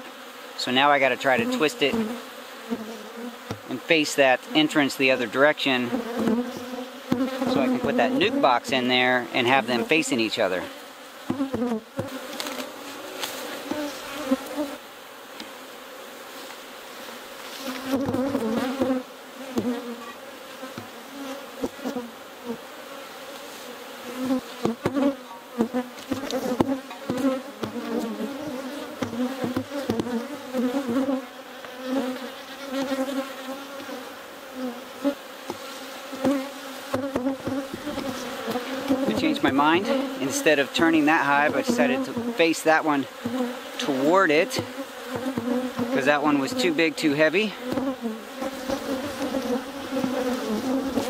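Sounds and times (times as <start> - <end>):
honeybees buzzing: 0.0 - 51.0
wooden hive boxes knocking: 3.4 - 3.7, 5.9 - 8.8, 11.2 - 12.8, 17.8 - 20.1, 20.7 - 21.0, 21.6 - 22.0, 24.2 - 31.8, 35.4 - 42.4, 44.4 - 46.0, 47.6 - 51.0.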